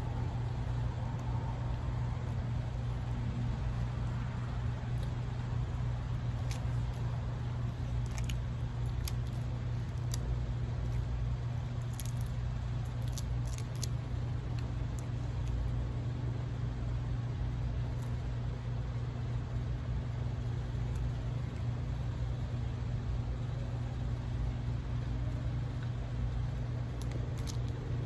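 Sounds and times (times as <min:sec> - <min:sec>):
low motor hum: 0:00.0 - 0:28.0
shrimp shell crackling: 0:06.2 - 0:07.1, 0:07.7 - 0:11.1, 0:11.7 - 0:15.6, 0:26.9 - 0:27.9.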